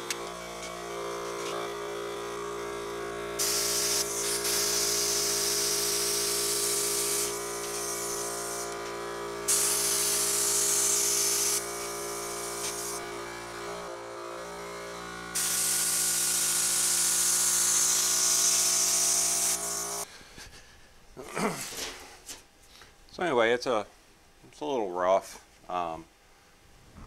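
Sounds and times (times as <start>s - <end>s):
steady machine hum: 0.0s - 20.8s
plasma cutter hissing: 3.4s - 8.8s, 9.4s - 13.1s, 15.3s - 20.0s.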